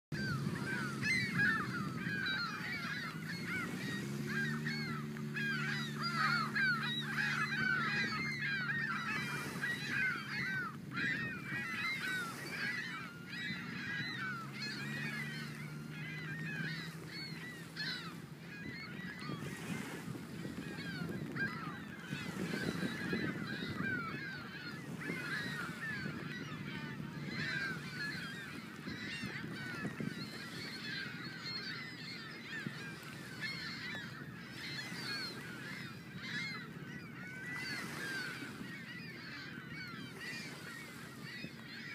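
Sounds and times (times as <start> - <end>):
geese honking: 0.2 - 41.9.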